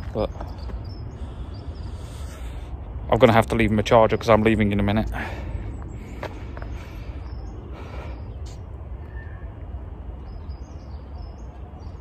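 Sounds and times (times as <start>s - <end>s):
faint bird chirps: 7.0s - 12.0s.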